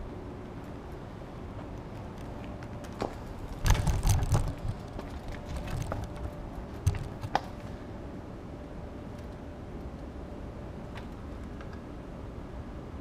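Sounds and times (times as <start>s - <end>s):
steady low rumble: 0.0s - 13.0s
knocks and rustling: 2.7s - 7.6s.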